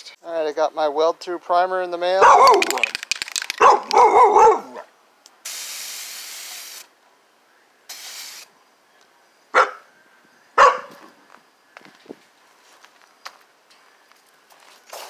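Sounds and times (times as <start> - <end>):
dog barking: 2.2 - 2.8, 3.6 - 4.9, 9.5 - 9.9, 10.6 - 11.0
aerosol spray hissing: 5.4 - 6.9, 7.9 - 8.5.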